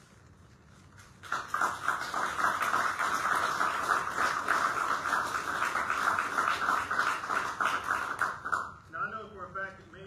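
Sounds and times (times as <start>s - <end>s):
audience applauding: 1.2s - 8.8s.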